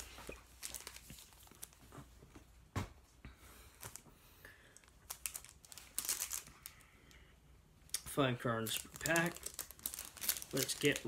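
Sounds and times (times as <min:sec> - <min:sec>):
foil wrappers crinkling: 0:00.0 - 0:01.9, 0:04.8 - 0:06.9, 0:07.9 - 0:11.0.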